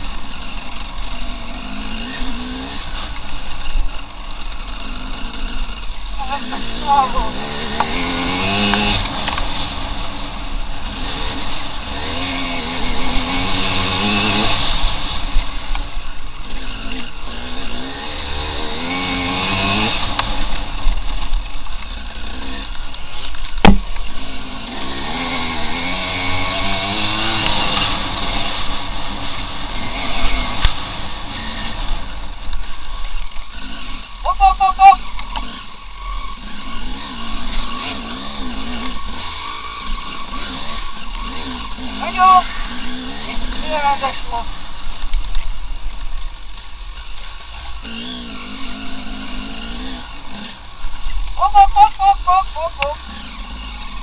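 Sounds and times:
motorcycle engine revving: 0:00.0 - 0:54.0
sharp knock: 0:23.6 - 0:23.9.

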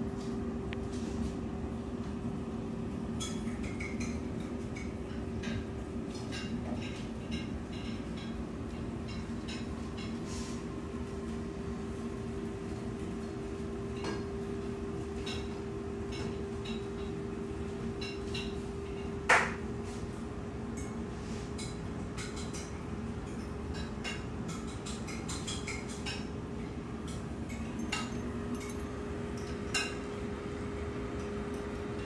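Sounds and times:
dishes and utensils clinking: 0:03.2 - 0:08.4, 0:21.6 - 0:26.3, 0:27.1 - 0:30.1.

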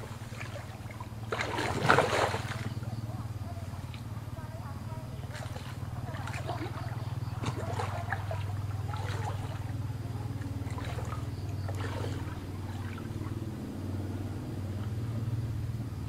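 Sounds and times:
steady low hum: 0:00.0 - 0:16.0
hands splashing in water: 0:00.1 - 0:03.0, 0:05.2 - 0:13.4.

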